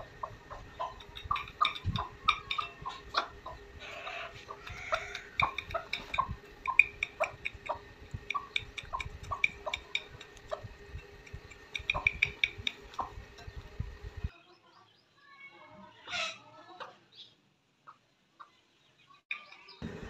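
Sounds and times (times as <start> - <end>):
hen pecking grain from bowl: 0.0 - 14.1.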